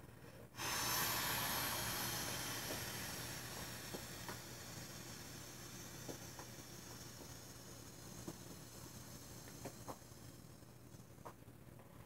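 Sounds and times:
breath blowing into toy valve: 0.5 - 11.1.

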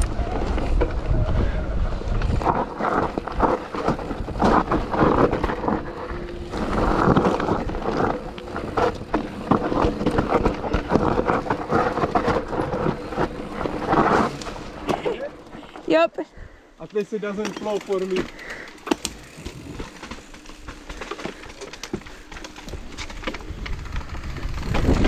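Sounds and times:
wind on microphone: 0.0 - 8.0
bike tyres rolling over dirt: 0.0 - 25.0
bike knocks and rattles: 2.1 - 15.7, 16.9 - 25.0.

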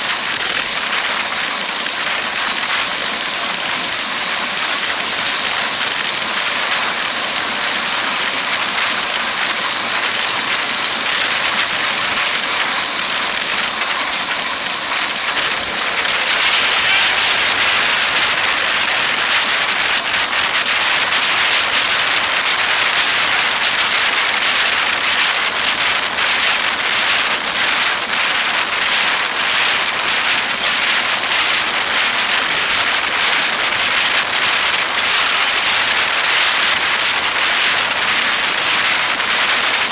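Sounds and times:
road and traffic noise: 0.0 - 26.0
wind noise on microphone: 0.0 - 39.9.

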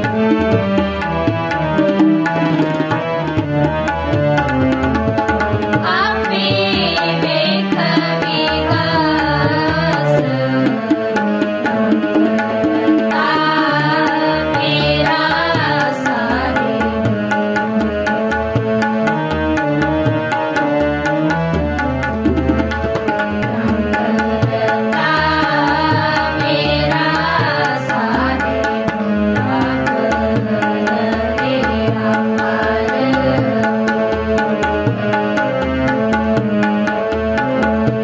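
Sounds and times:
harmoniums playing melody: 0.0 - 38.0
tabla beat: 0.0 - 38.0
girls singing: 5.8 - 11.4, 12.7 - 17.0, 23.8 - 33.7.

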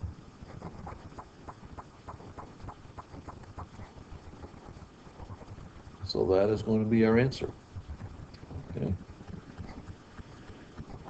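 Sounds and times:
low background noise: 0.0 - 11.0.

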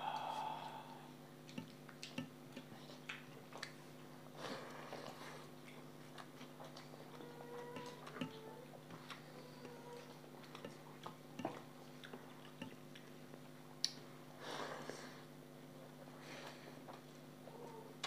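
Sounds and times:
faint steady hum: 0.0 - 18.0
chewing smacks: 1.4 - 14.1.

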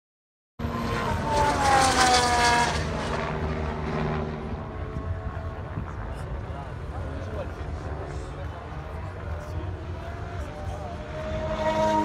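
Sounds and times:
racing car passing at speed: 0.6 - 5.1, 9.8 - 12.0.

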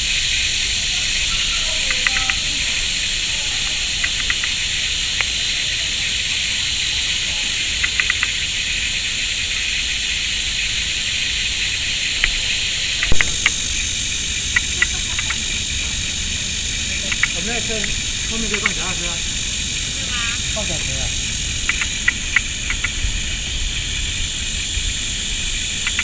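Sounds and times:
outdoor mudflat hiss: 0.0 - 26.0.

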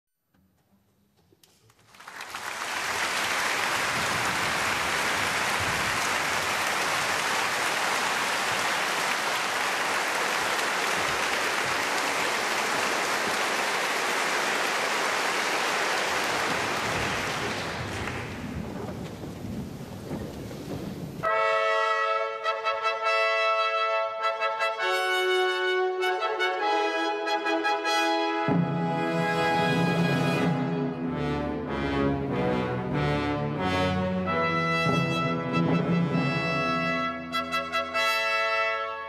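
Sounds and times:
audience applauding: 1.4 - 20.8.

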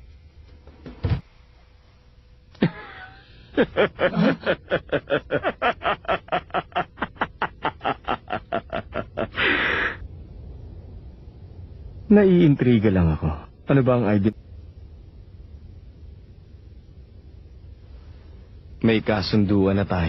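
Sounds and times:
man laughing: 2.6 - 10.0
breathy hiss: 8.3 - 10.5.

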